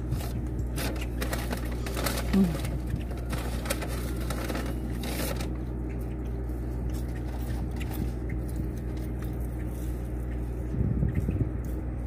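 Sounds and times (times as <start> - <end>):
steady low hum: 0.0 - 12.0
chewing with small clicks: 5.6 - 12.0.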